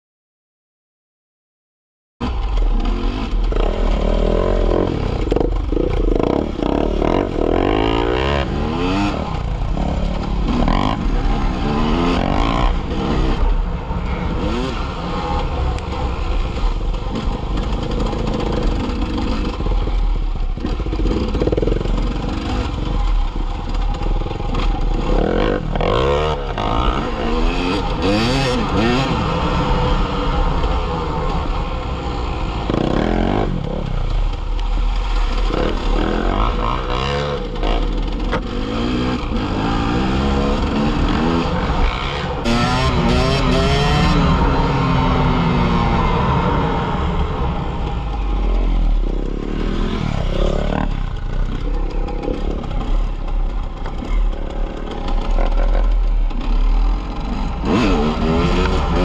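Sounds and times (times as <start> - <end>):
motorcycle engine revving: 2.2 - 59.0.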